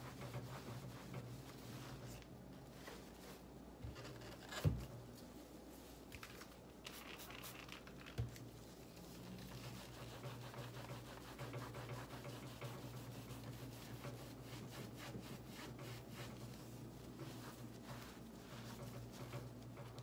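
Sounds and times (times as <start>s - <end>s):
cloth wiping amplifier cabinet: 0.0s - 3.6s, 9.1s - 20.0s.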